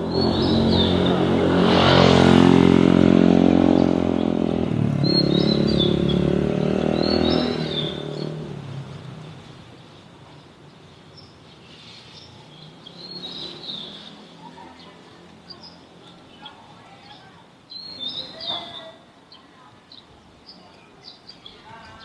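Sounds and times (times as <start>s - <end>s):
vehicle engine passing by: 0.0s - 9.8s
birds chirping: 0.0s - 22.0s.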